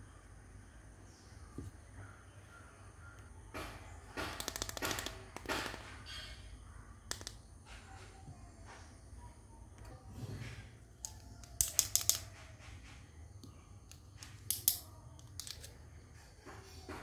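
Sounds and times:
plastic toy cutlery clicking: 4.2s - 5.8s, 7.1s - 7.4s, 11.0s - 12.5s, 13.9s - 15.8s.

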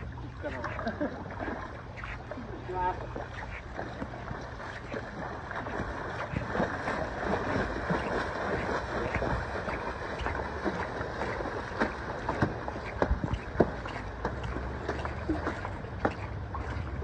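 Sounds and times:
board splashing through water: 0.0s - 17.0s
paddle strokes in water: 0.0s - 17.0s
wind rumbling on microphone: 0.0s - 17.0s.

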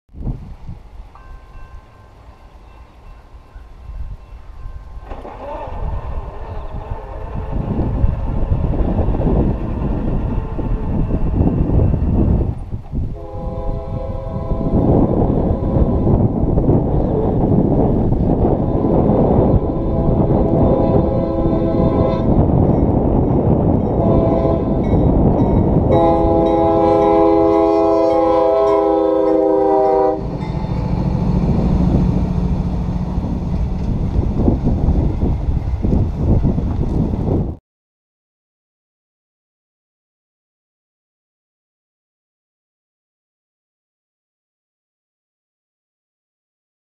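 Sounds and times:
locomotive air horn chord: 5.3s - 11.6s, 13.1s - 16.3s, 18.5s - 22.4s, 23.9s - 25.2s, 25.8s - 31.3s.

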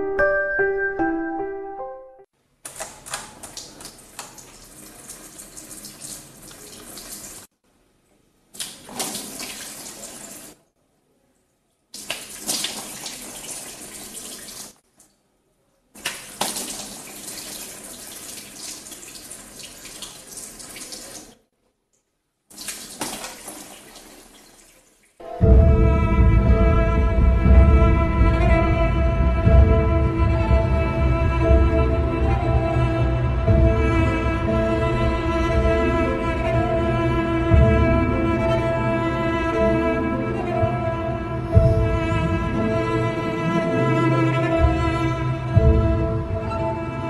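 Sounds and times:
water running in a sink: 2.8s - 7.5s, 8.6s - 10.6s, 12.0s - 15.1s, 16.0s - 21.4s, 22.5s - 25.2s.

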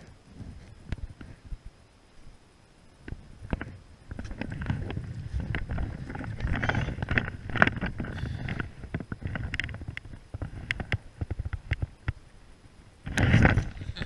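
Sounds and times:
small irregular clicks and knocks: 3.0s - 12.2s
wind rumbling on microphone: 3.0s - 14.0s.

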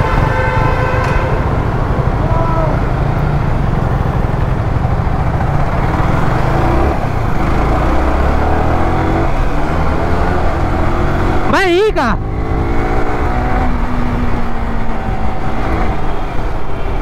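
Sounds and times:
road noise: 0.0s - 17.0s
motorcycle engine running: 1.7s - 16.6s.

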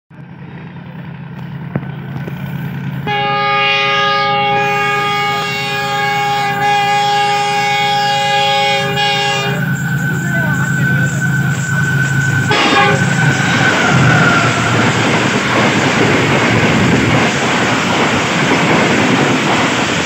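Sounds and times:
locomotive rumbling: 0.1s - 20.0s
long train horn blast: 3.0s - 15.0s.

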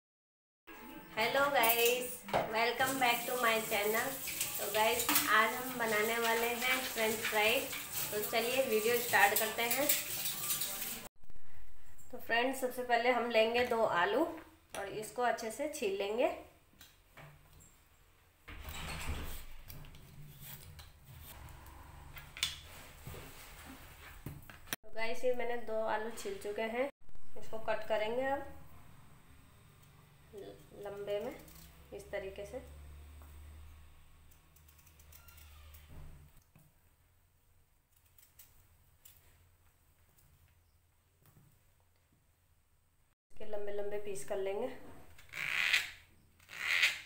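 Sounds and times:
peeler scraping potato skin: 45.2s - 47.0s.

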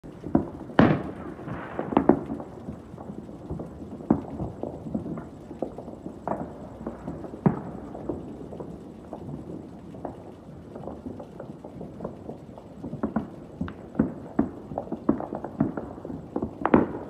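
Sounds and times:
fireworks bangs and pops: 0.1s - 17.0s.

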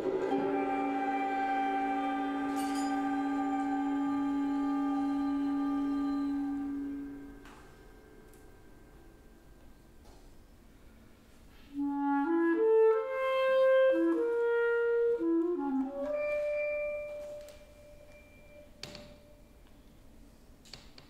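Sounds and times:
solo clarinet: 0.0s - 8.0s, 11.7s - 19.4s.

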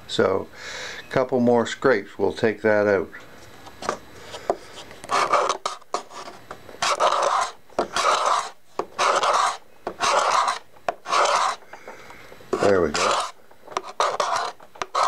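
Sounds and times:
hand scraper rasping on wood: 5.1s - 6.2s, 6.8s - 11.6s, 12.6s - 15.0s.

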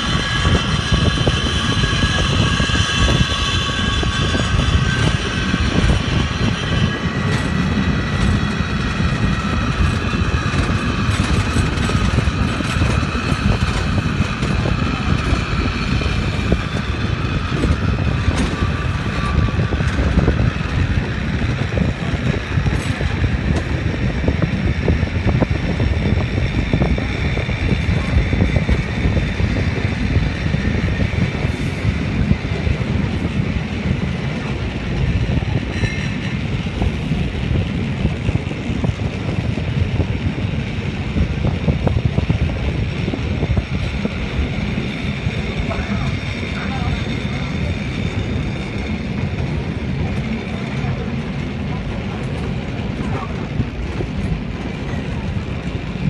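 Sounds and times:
rumble of wheels on rails: 0.0s - 56.0s.

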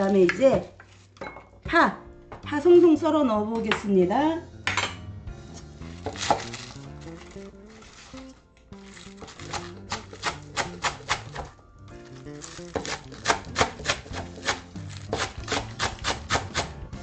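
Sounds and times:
background music: 0.0s - 17.0s
knife chopping on wooden board: 6.0s - 6.6s, 9.2s - 11.5s, 12.4s - 16.8s.

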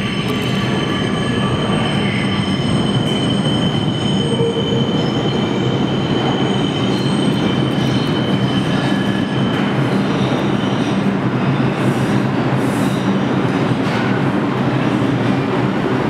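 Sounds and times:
high wheel squeal: 0.0s - 11.9s
train wheels rumbling on rail: 0.0s - 16.0s.

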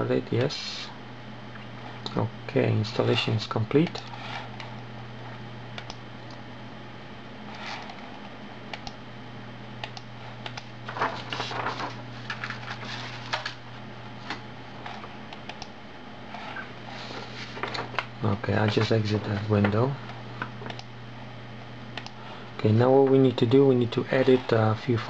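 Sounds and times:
steady low hum: 0.0s - 25.0s
keyboard and mouse clicks: 9.8s - 10.7s, 20.6s - 20.9s.

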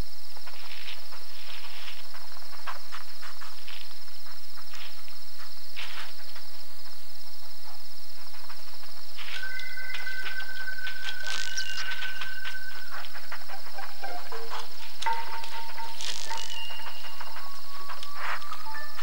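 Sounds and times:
high pulsed cricket trill: 0.0s - 19.0s
mouse rustling through dry twigs: 9.2s - 13.9s, 14.6s - 19.0s.

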